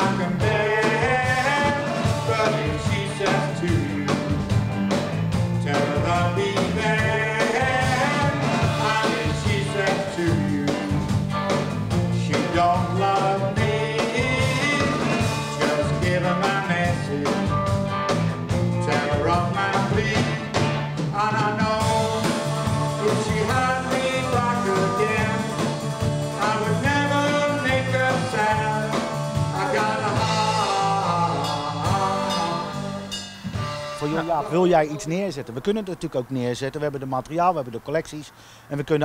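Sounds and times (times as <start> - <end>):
man singing: 0.0 - 4.4, 5.6 - 11.0, 12.1 - 17.5, 18.8 - 33.1, 34.0 - 35.2
electric guitar: 0.0 - 34.5
live rhythm and blues band: 0.0 - 34.8.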